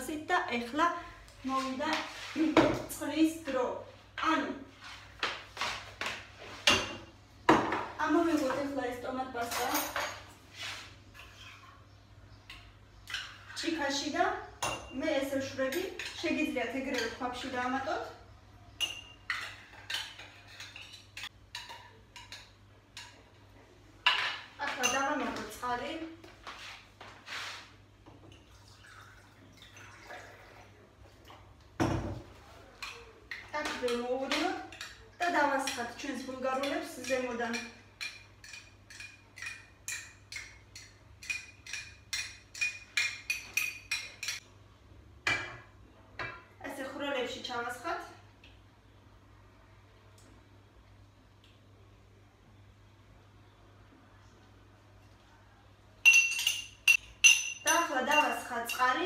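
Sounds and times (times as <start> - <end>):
utensils clinking against dishes: 9.4 - 10.4, 18.8 - 23.2, 32.8 - 44.4, 56.0 - 59.0.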